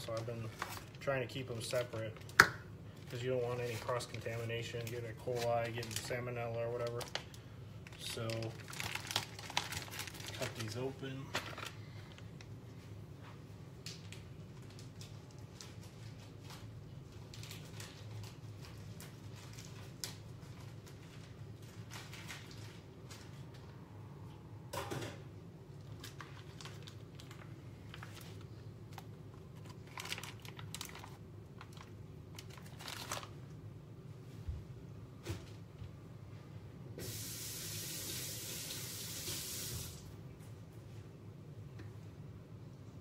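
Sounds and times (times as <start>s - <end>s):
plastic packaging crinkling and tearing: 0.0s - 2.4s, 3.0s - 12.5s, 13.8s - 23.7s, 25.8s - 33.5s.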